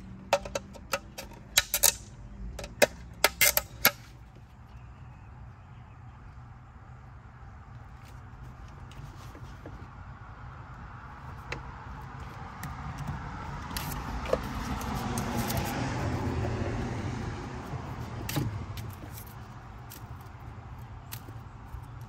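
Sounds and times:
vehicle passing: 0:09.8 - 0:21.8
cable sheath peeled by hand: 0:12.2 - 0:16.3.

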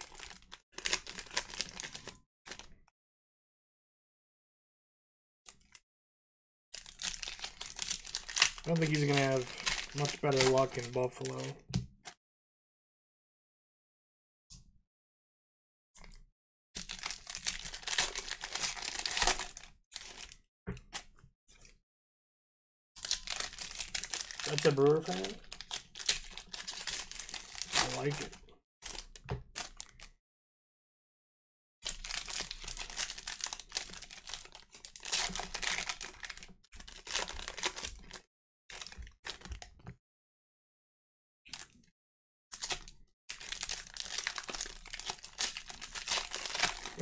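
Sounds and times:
foil wrapper crinkling: 0:00.0 - 0:02.7, 0:06.8 - 0:11.5, 0:16.8 - 0:20.4, 0:23.0 - 0:30.0, 0:31.8 - 0:39.6, 0:42.6 - 0:47.0.

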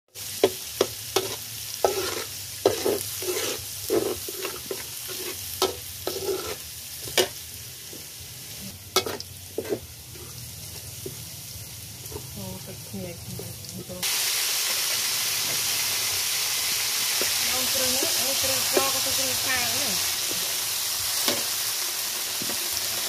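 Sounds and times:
food sizzling in hot oil: 0:00.1 - 0:23.0
metal spatula scraping a wok: 0:00.4 - 0:07.5, 0:08.6 - 0:10.4.

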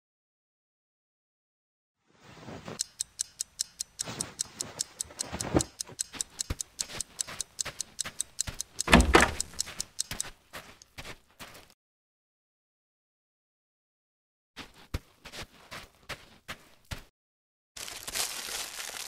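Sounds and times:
rustling noise: 0:02.1 - 0:03.0, 0:04.0 - 0:06.0
fast clock-like ticking: 0:02.8 - 0:10.3.

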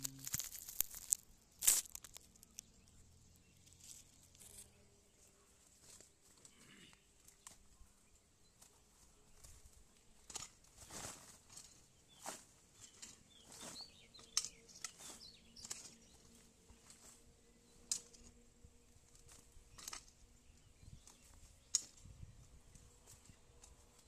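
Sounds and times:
hoe chopping and scraping soil: 0:00.0 - 0:02.2, 0:09.4 - 0:18.4, 0:19.0 - 0:24.0
birds chirping: 0:00.0 - 0:24.0.

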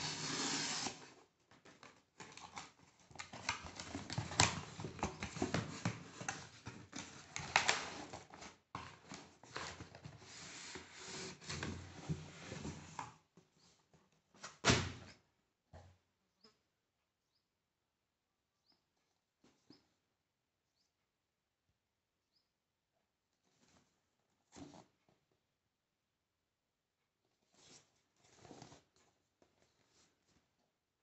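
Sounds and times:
cardboard tape tearing: 0:00.0 - 0:01.1.

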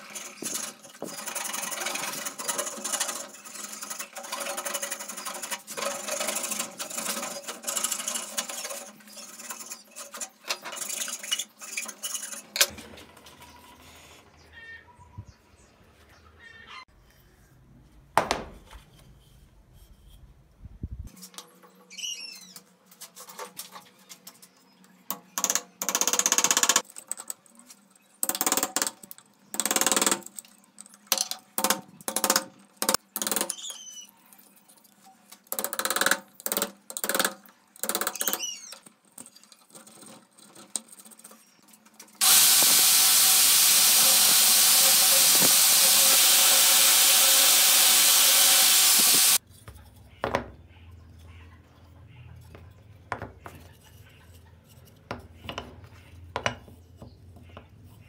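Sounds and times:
power tool running: 0:42.2 - 0:49.4.

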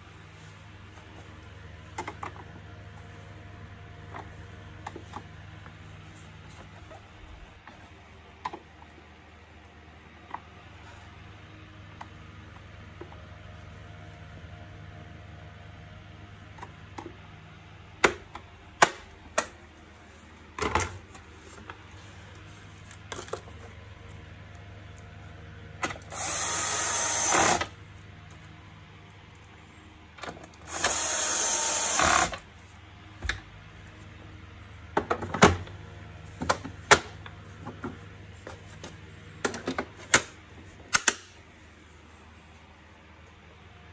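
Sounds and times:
cordless drill driving screws: 0:26.1 - 0:27.7, 0:30.7 - 0:32.4.

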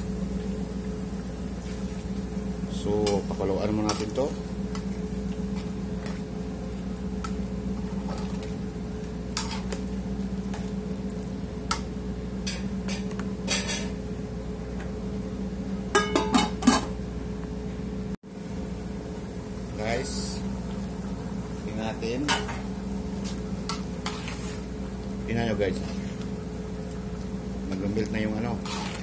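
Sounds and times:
metal turner scraping in pot: 0:24.0 - 0:24.6, 0:28.6 - 0:29.0.

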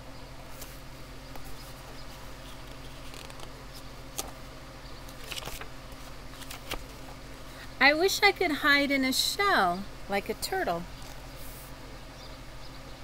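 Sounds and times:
low background hum: 0:00.0 - 0:13.0
book page turning: 0:00.5 - 0:04.4, 0:05.1 - 0:07.1.

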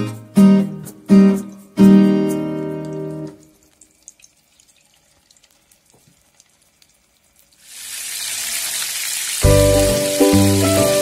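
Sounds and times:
acoustic guitar music: 0:00.0 - 0:03.6, 0:09.4 - 0:11.0
cutlets sizzling in hot oil: 0:03.4 - 0:11.0.

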